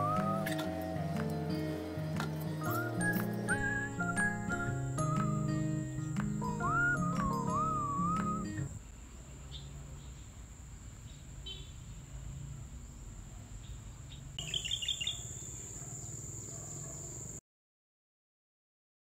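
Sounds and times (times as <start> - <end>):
thin high whine: 0.0 - 5.5
birds chirping: 0.0 - 8.8, 14.1 - 16.9.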